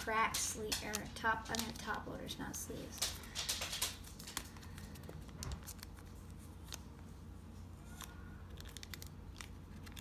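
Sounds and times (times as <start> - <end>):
plastic card sleeve rustling: 0.4 - 2.0, 3.0 - 7.1, 7.9 - 10.0.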